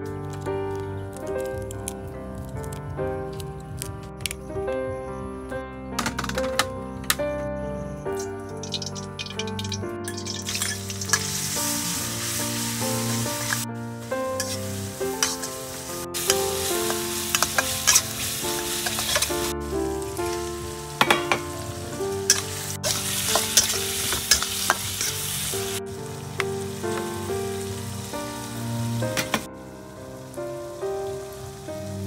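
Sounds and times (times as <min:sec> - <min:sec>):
background music: 0:00.0 - 0:32.0
oil sizzling in a wok: 0:08.5 - 0:32.0
metal spatula scraping pan: 0:08.6 - 0:12.4, 0:14.4 - 0:19.5, 0:22.3 - 0:25.3.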